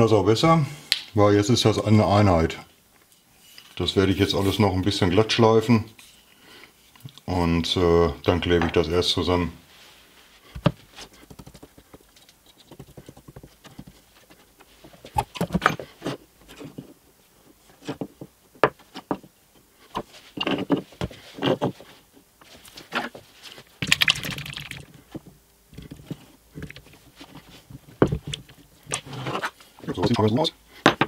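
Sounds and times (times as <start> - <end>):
plywood parts knocking: 27.9 - 28.6.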